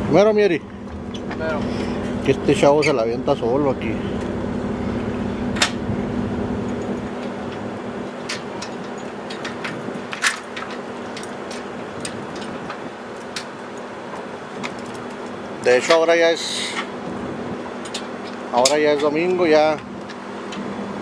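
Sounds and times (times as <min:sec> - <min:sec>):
steady low hum: 0:00.0 - 0:21.0
metallic chain clinks and rattles: 0:14.6 - 0:15.4.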